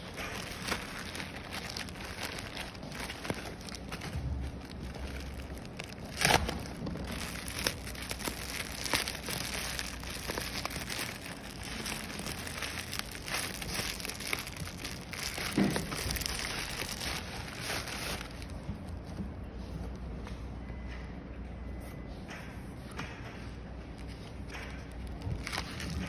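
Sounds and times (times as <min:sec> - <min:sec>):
plastic mailer bag crinkling and tearing: 0:00.0 - 0:18.6, 0:24.8 - 0:26.0.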